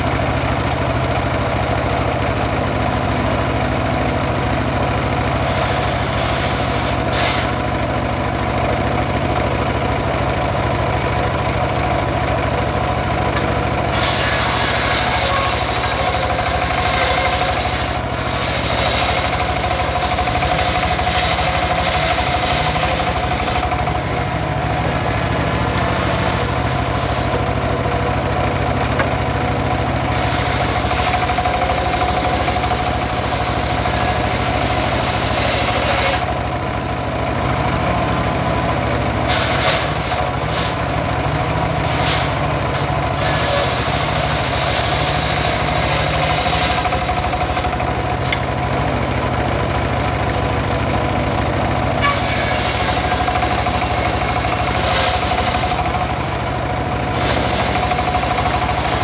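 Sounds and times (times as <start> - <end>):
engine drone: 0.0 - 59.0
saw blade cutting log: 2.9 - 9.8, 13.2 - 36.6, 38.6 - 48.5, 51.8 - 59.0
spinning saw blade hum: 4.8 - 8.0, 13.4 - 36.5, 38.1 - 48.5, 52.0 - 59.0.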